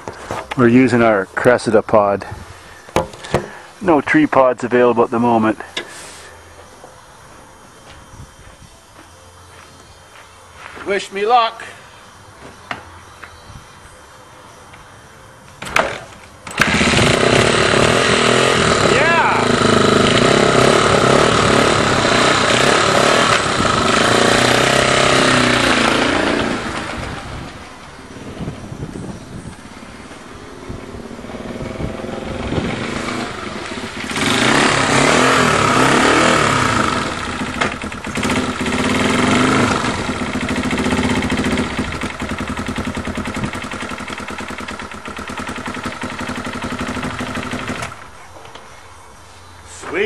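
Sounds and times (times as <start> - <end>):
motorcycle engine revving: 15.8 - 48.1.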